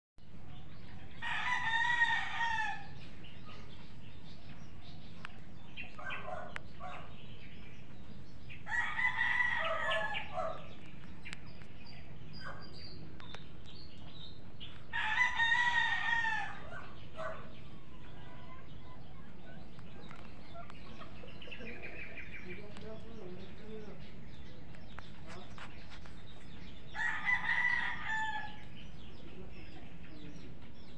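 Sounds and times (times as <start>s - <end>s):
rooster crowing: 1.2s - 3.0s, 8.6s - 10.5s, 14.9s - 16.9s, 27.0s - 28.6s.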